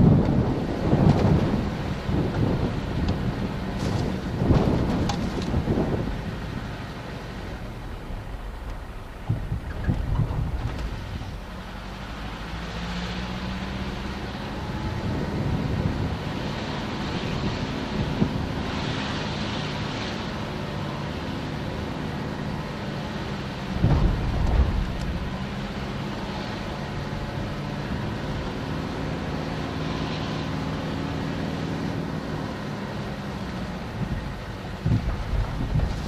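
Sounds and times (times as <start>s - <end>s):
engine running at low revs: 0.0s - 36.0s
short low thuds: 7.8s - 11.5s.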